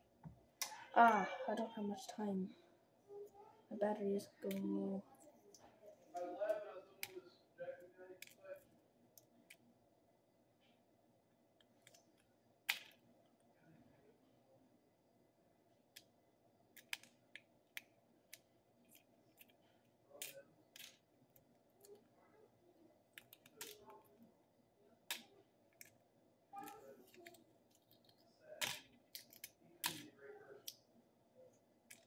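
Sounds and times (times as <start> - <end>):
eggshell cracking and clicking: 27.2 - 30.0.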